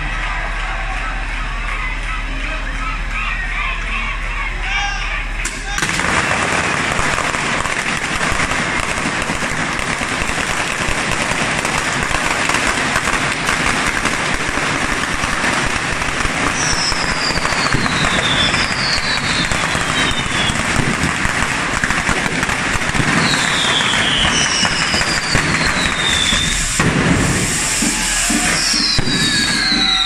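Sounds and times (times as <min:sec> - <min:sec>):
firecrackers crackling: 0:05.4 - 0:30.0
falling firework whistles: 0:06.9 - 0:30.0.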